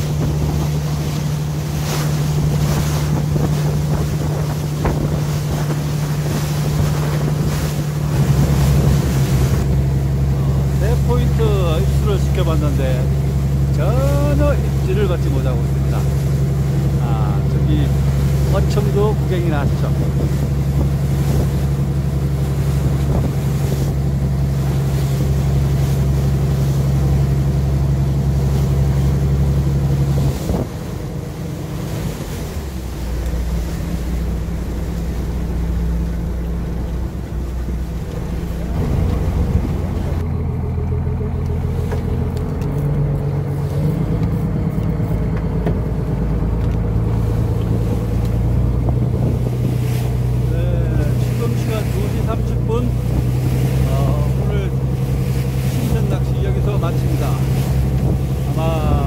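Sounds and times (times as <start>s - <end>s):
wind on microphone: 0.0s - 10.7s, 19.0s - 26.1s, 30.0s - 31.1s, 31.9s - 40.3s, 46.9s - 56.2s, 56.8s - 59.0s
boat engine humming: 0.0s - 59.0s.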